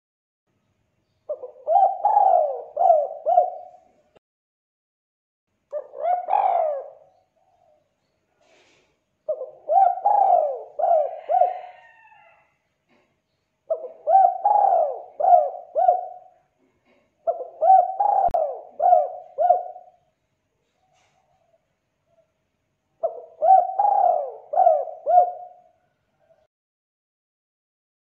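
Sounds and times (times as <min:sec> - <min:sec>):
dove cooing: 0:01.3 - 0:04.0, 0:05.7 - 0:07.8, 0:09.3 - 0:12.4, 0:13.7 - 0:20.1, 0:23.0 - 0:26.5.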